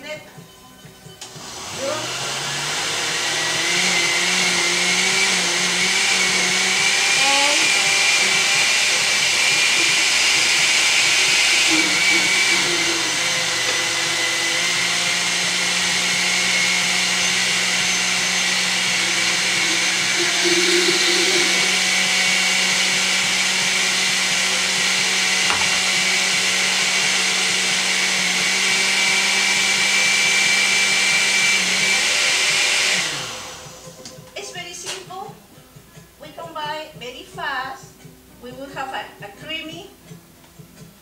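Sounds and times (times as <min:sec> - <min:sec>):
blender motor running: 0:01.2 - 0:34.0.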